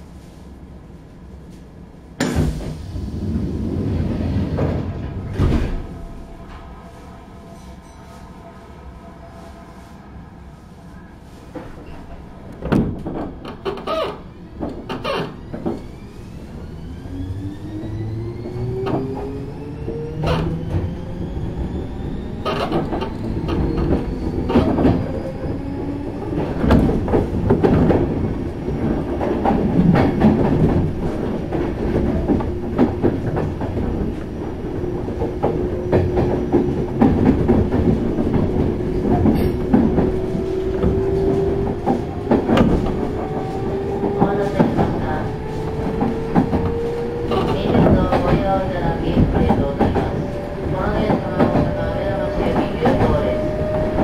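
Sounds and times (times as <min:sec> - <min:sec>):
train car rumble: 0:00.0 - 0:54.0
rail-joint clickety-clack: 0:11.4 - 0:54.0.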